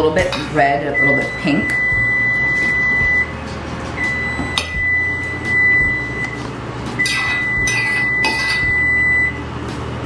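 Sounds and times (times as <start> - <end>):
steady hum with high whine: 0.0 - 10.0
fork clinking against metal bowl: 7.0 - 8.7.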